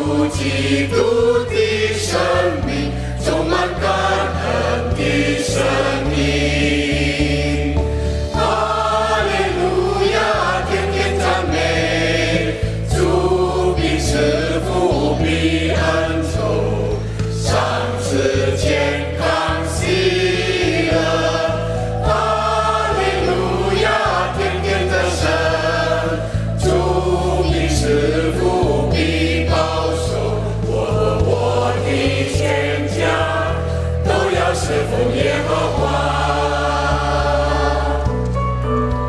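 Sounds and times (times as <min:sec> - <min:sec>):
mixed choir singing a hymn: 0:00.0 - 0:38.4
instrumental accompaniment with bass: 0:00.0 - 0:39.0.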